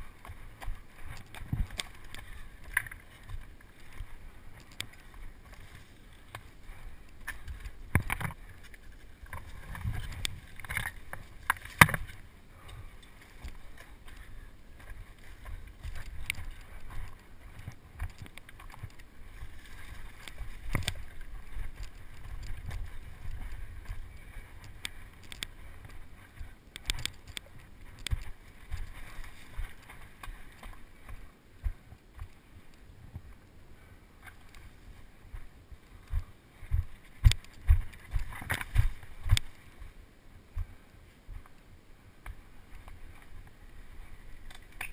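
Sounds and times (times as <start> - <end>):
wind rumble on microphone: 0.0 - 44.9
bike rattling over ground: 7.2 - 12.3.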